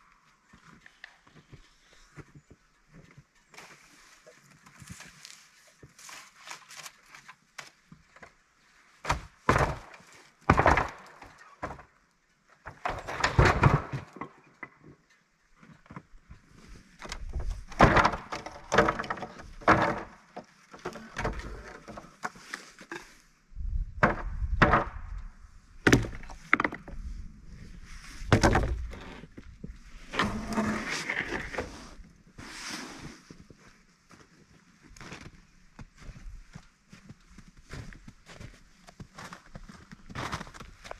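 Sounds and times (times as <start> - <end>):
wooden boards knocking together: 9.1 - 11.9, 12.7 - 14.8, 17.2 - 22.3, 24.0 - 25.1, 25.8 - 26.9, 28.3 - 29.0.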